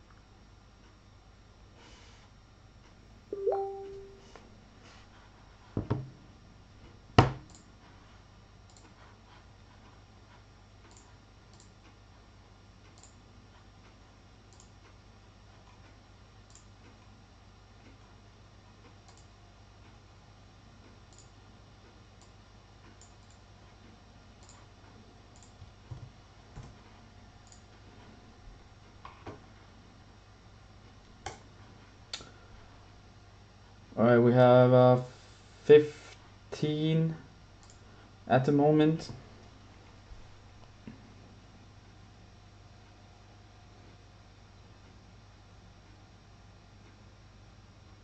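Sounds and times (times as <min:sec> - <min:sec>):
low steady hum: 0:00.0 - 0:48.0
faint scattered clicks: 0:08.6 - 0:09.1, 0:09.8 - 0:12.0, 0:12.8 - 0:17.1, 0:18.8 - 0:20.0, 0:20.8 - 0:25.8, 0:27.4 - 0:27.8, 0:37.6 - 0:37.8.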